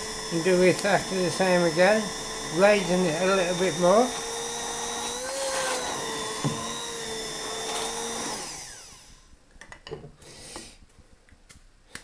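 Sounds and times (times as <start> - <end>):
stick blender motor whine: 0.0 - 9.4.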